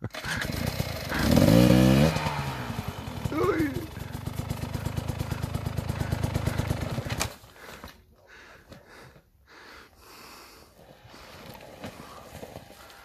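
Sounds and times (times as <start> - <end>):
motorcycle engine running: 0.0 - 7.4.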